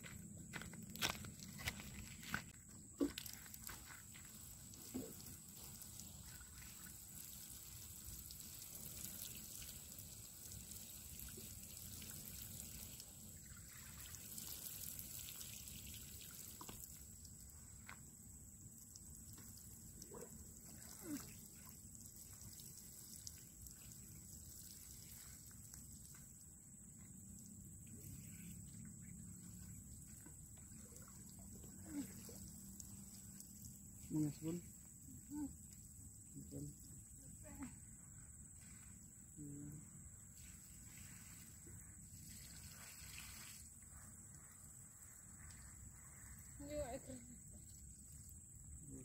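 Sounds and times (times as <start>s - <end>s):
footsteps on dirt: 0.0s - 4.3s
water trickling onto soil: 0.6s - 37.7s, 40.2s - 49.0s.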